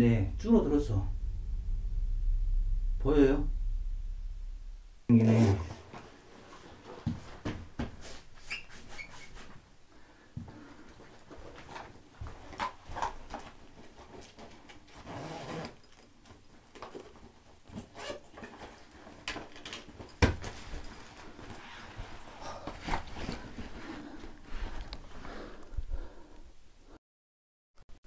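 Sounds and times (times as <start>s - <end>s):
sharp thump: 0.0s - 5.1s.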